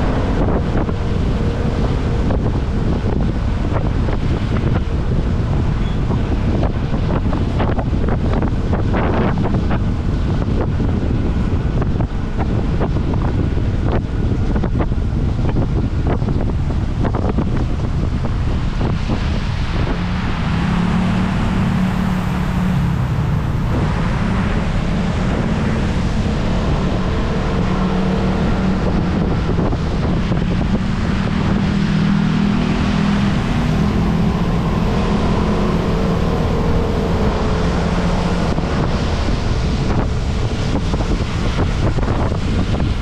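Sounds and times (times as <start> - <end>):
tyre noise on wet road: 0.0 - 43.0
wind buffeting microphone: 0.0 - 43.0
scooter engine hum: 17.3 - 43.0.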